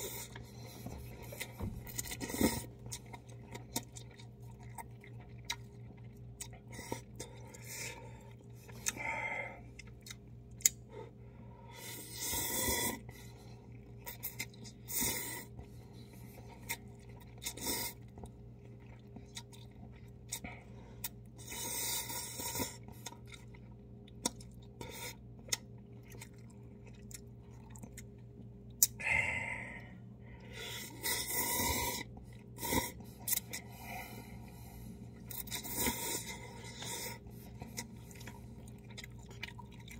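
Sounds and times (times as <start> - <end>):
wet chewing: 0.0 - 10.9, 11.8 - 29.0, 30.4 - 39.9
faint low hum: 0.0 - 39.9
person slurping noodles: 30.7 - 33.5.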